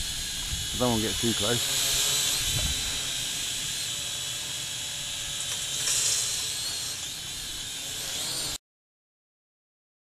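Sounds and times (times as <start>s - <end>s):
drone motors whining: 0.0s - 8.6s.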